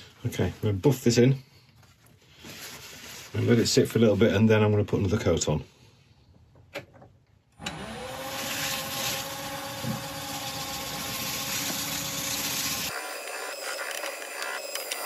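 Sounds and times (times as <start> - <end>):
wood lathe motor running: 7.6 - 15.0.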